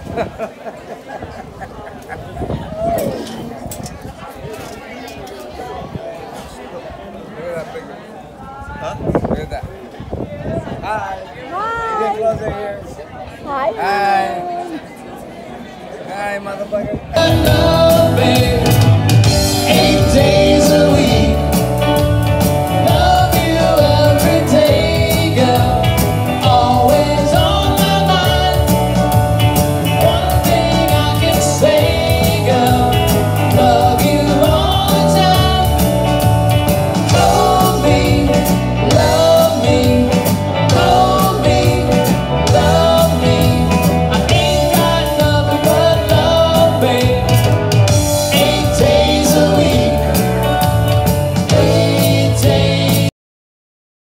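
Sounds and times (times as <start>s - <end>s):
man singing: 17.1s - 53.1s
electric bass: 17.2s - 53.1s
electric guitars: 17.2s - 53.1s.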